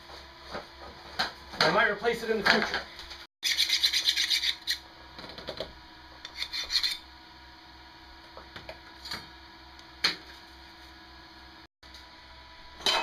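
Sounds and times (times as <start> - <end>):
file rasping on metal: 3.4 - 4.8, 6.3 - 7.0.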